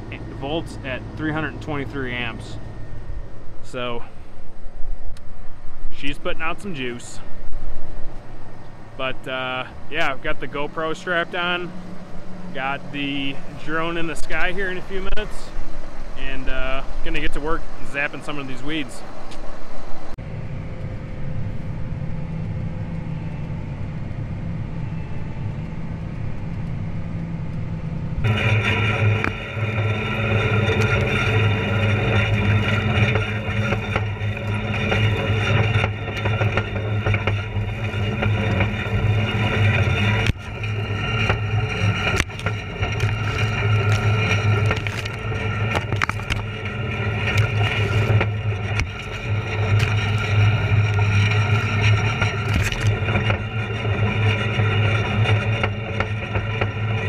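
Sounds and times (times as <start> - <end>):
weeds scraping past machine: 0.0 - 4.0, 9.0 - 19.0, 28.2 - 57.0
tractor generator humming: 0.0 - 5.6, 20.2 - 57.0
high steady tones: 0.0 - 57.0.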